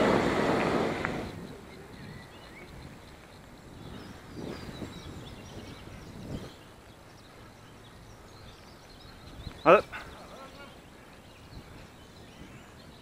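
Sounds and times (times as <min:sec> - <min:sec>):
car passing: 0:00.0 - 0:01.7
birds chirping: 0:00.0 - 0:13.0.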